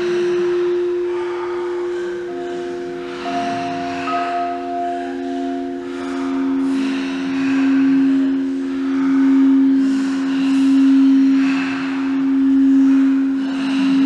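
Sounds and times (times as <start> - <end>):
singing bowl tone: 0.0 - 9.8.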